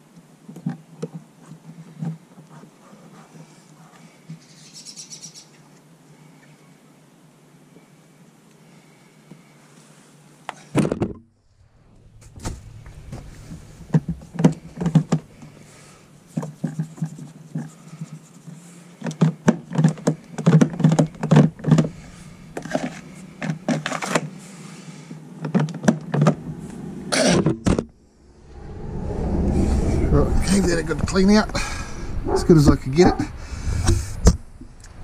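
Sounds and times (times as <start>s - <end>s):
steady low hum: 11.3s - 19.0s, 19.9s - 35.0s
rush of noise: 11.4s - 16.6s, 20.2s - 35.0s
plastic parts clicking and knocking: 19.0s - 21.9s.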